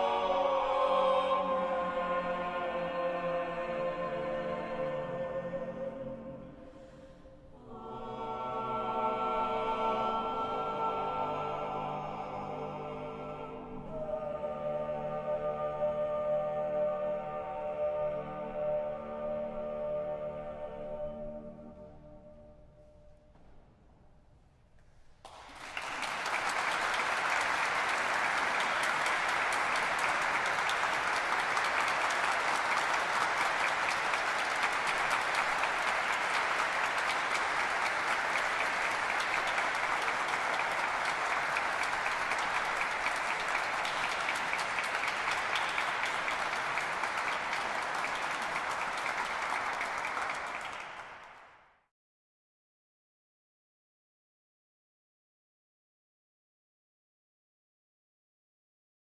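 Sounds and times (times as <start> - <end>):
audience applauding: 25.2 - 51.6.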